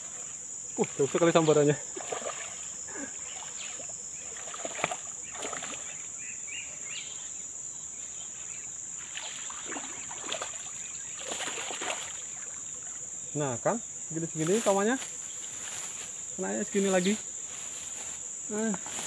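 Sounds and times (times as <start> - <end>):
high insect buzz: 0.0 - 19.0
fish splashing and thrashing: 0.8 - 6.0, 9.0 - 13.0.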